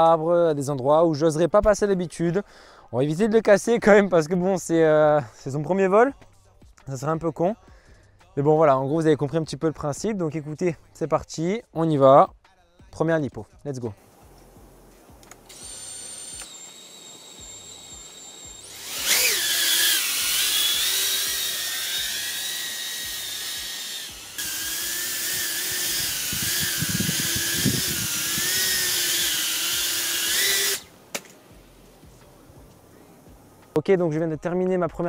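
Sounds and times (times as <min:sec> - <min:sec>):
quadcopter motors whining: 0:15.3 - 0:30.9.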